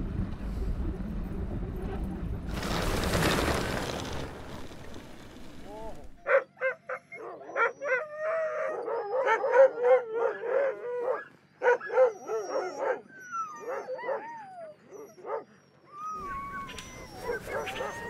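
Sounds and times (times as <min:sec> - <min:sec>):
dogs barking and yelping: 0:06.2 - 0:18.0
dogs whining and yowling: 0:06.2 - 0:18.0.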